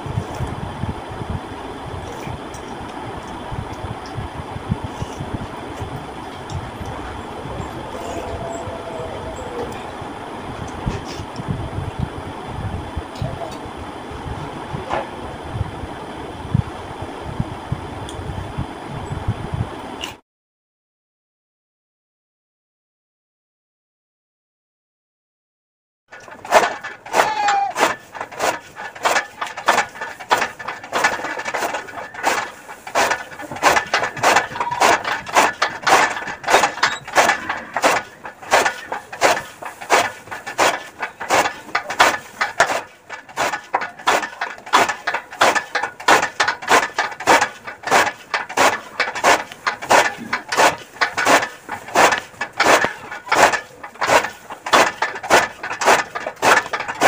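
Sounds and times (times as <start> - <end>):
chaff cutter chopping grass: 26.1 - 57.0.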